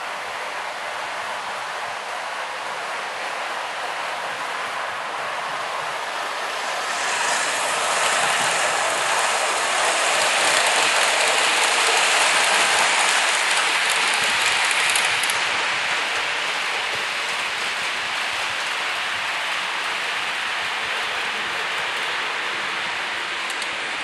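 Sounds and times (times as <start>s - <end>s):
model train rattling whir: 4.0s - 24.0s
fast clicks: 7.7s - 15.5s.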